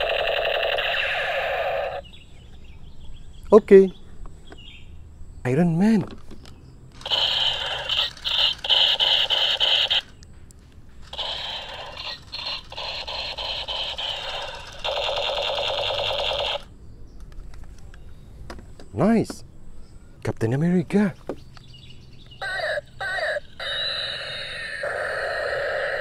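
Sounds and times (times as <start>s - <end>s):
toy gun electronic shooting sound: 0.0s - 2.0s, 7.0s - 10.2s, 11.0s - 16.7s, 22.4s - 26.0s.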